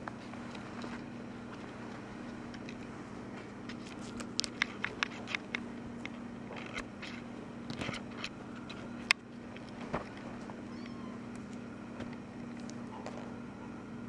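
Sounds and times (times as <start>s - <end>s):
steady low hum: 0.0s - 14.0s
claws scratching and clicking: 3.6s - 13.4s.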